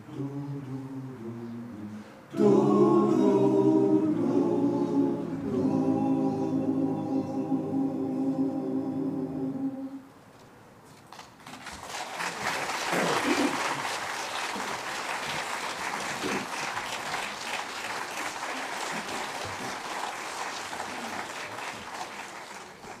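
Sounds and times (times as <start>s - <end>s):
crowd applauding: 11.2s - 23.0s
calls from crowd: 11.8s - 23.0s.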